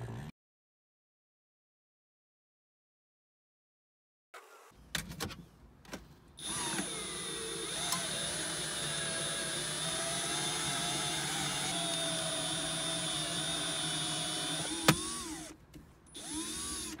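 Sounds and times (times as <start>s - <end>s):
cordless drill whining: 6.4s - 17.0s.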